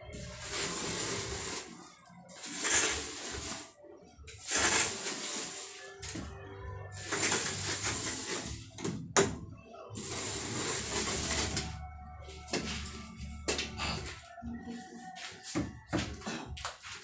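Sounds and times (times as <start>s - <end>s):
plastering tool scraping wall: 0.2s - 1.8s, 2.4s - 3.7s, 4.4s - 6.3s, 7.0s - 9.3s, 10.0s - 11.8s.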